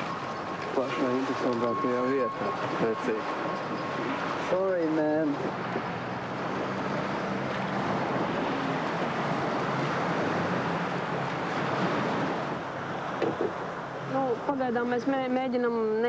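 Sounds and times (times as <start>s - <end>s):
surf rushing: 0.0s - 14.3s
wind: 0.0s - 16.0s.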